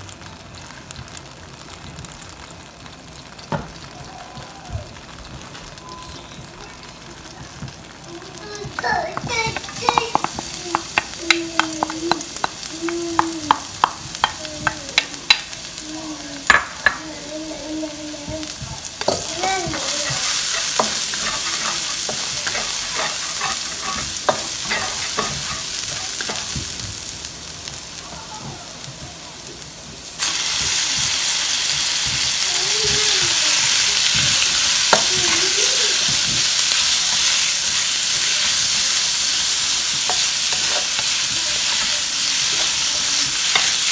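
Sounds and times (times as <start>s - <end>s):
food sizzling in hot oil: 0.0s - 43.9s
spatula scraping a pan: 19.0s - 26.4s.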